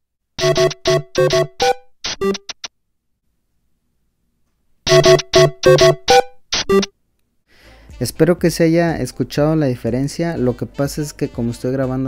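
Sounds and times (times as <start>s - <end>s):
ringtone melody plucked notes: 0.4s - 2.5s, 4.9s - 6.9s.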